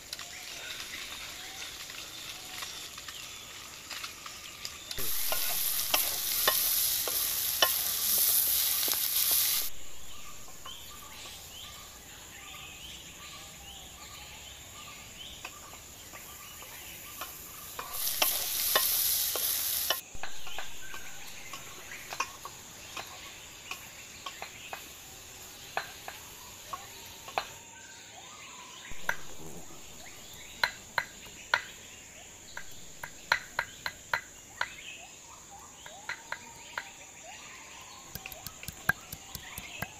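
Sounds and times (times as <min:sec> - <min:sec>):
fish sizzling in hot oil: 0:00.0 - 0:11.4, 0:16.1 - 0:26.4
spatula scraping a wok: 0:05.0 - 0:09.7, 0:17.7 - 0:20.0.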